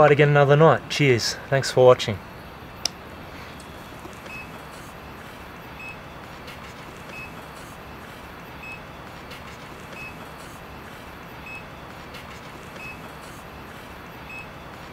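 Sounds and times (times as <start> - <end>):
static hiss: 0.0 - 14.9.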